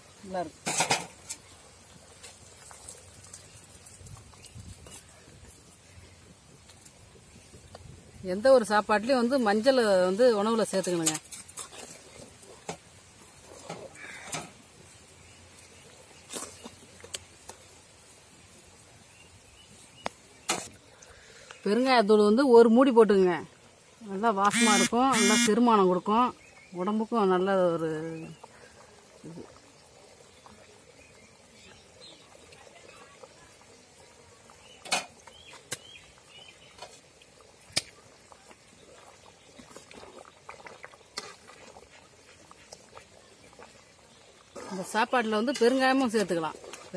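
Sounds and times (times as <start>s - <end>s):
liquid bubbling: 25.7s - 46.9s.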